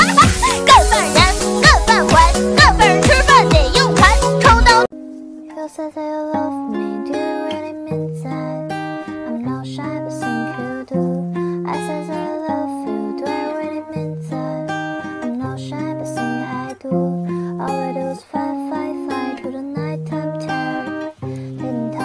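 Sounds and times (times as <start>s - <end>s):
bass line: 0.0s - 4.9s
plucked strings: 0.0s - 18.0s.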